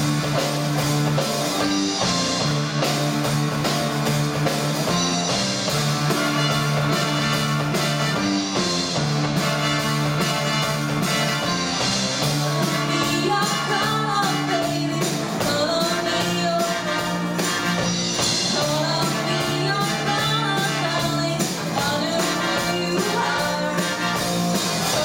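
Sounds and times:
rock band with horns playing: 0.0 - 25.0
woman singing lead: 12.5 - 17.8, 18.5 - 25.0.

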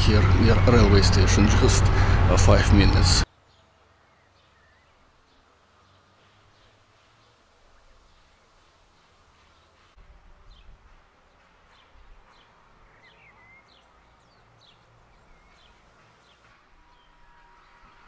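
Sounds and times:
low rumbles: 0.0 - 3.3
songbirds chirping: 0.0 - 18.0.

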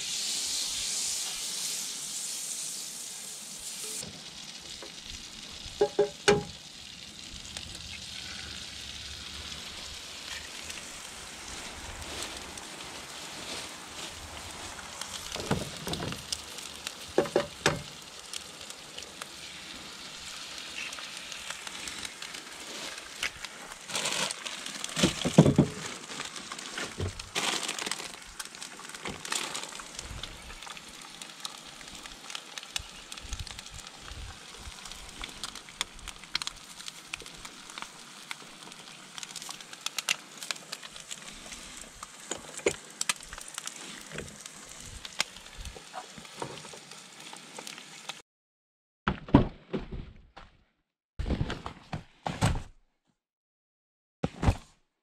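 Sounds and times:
eggs sizzling in a pan: 0.0 - 48.2
plastic bags crinkling: 20.6 - 30.8.

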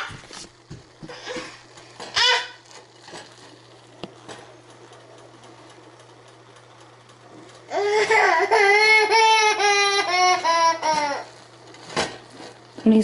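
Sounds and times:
steady low hum: 0.0 - 13.0
baby crying: 7.7 - 11.3.

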